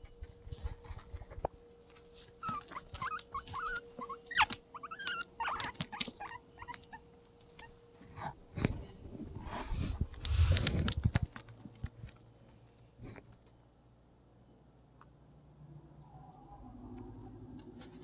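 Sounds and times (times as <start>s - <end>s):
guinea pig squeaking: 2.4s - 7.8s.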